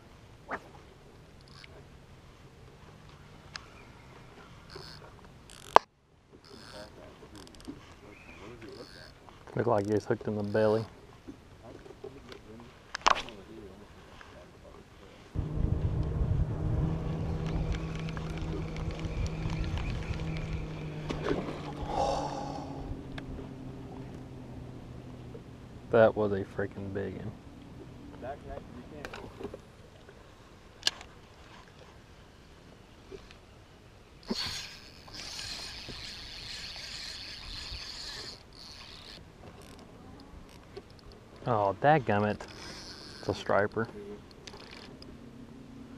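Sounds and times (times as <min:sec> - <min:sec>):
fishing reel cranking: 0:01.4 - 0:01.7, 0:04.7 - 0:05.8, 0:06.4 - 0:07.7, 0:08.7 - 0:09.2, 0:34.2 - 0:39.8, 0:42.4 - 0:43.5, 0:44.4 - 0:45.1
electric trolling motor humming: 0:15.4 - 0:26.0, 0:34.2 - 0:41.0, 0:42.4 - 0:43.5.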